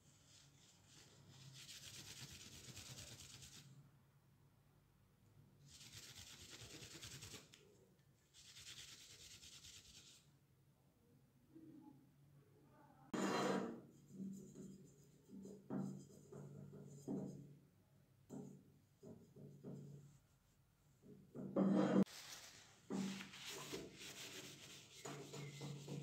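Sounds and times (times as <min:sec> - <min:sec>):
paper towel scrubbing metal: 0:22.1 - 0:26.0.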